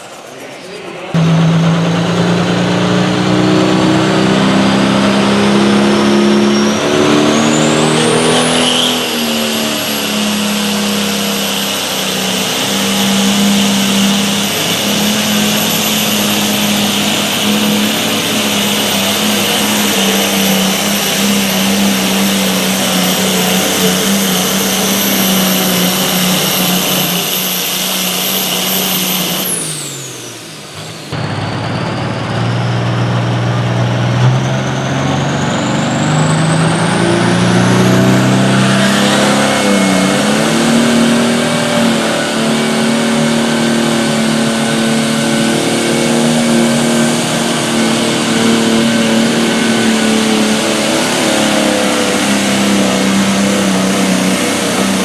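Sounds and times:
diesel tractor engine under load: 0.0s - 55.0s
high turbo whistle: 0.0s - 55.0s.

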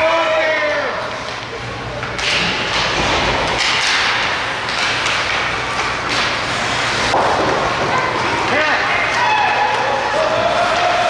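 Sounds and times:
skates scraping on ice: 3.0s - 11.0s.

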